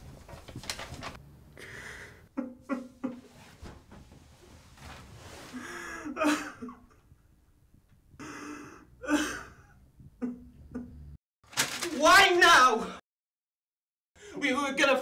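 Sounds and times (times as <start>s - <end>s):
man sobbing: 5.8s - 7.0s, 8.2s - 10.9s.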